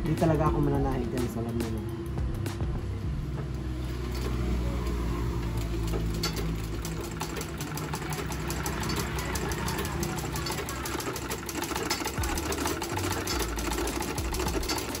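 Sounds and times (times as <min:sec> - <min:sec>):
sewing machine running: 0:03.2 - 0:15.0.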